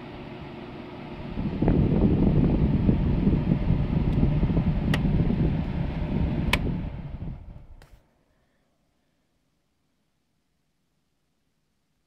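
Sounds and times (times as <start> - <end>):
air conditioner fan blowing: 0.0 - 8.0.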